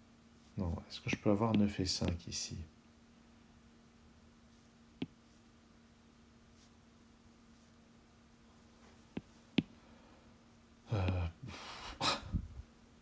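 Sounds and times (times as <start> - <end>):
faint electrical hum: 0.0 - 13.0
person sighing: 10.8 - 12.4.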